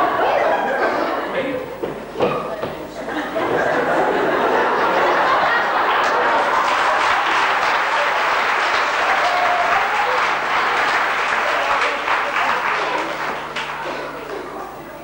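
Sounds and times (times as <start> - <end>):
audience applauding: 4.3 - 14.7.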